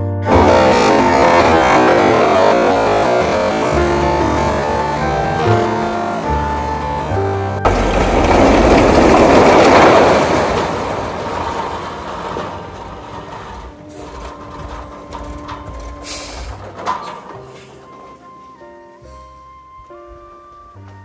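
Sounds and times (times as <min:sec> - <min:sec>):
bamboo poles clattering: 0:07.6 - 0:19.0.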